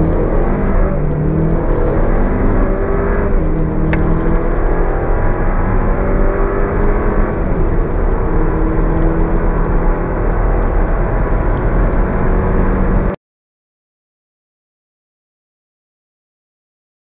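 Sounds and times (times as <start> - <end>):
car engine accelerating: 0.0 - 13.2.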